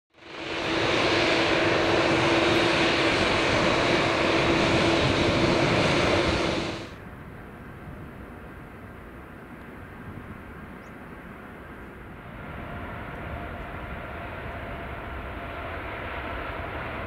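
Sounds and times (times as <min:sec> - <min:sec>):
distant jet engine noise: 0:00.1 - 0:17.0
jet engines at taxi power: 0:00.1 - 0:17.0.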